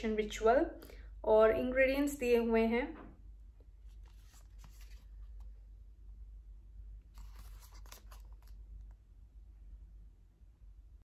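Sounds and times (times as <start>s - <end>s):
low steady hum: 0.0s - 11.0s
cardboard scraping and crinkling: 3.9s - 5.4s, 7.1s - 8.6s.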